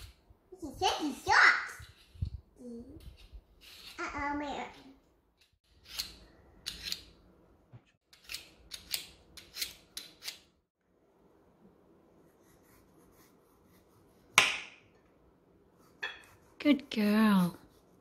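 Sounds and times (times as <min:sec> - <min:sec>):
vegetable peeler scraping cucumber: 0:03.0 - 0:04.8, 0:05.6 - 0:07.1.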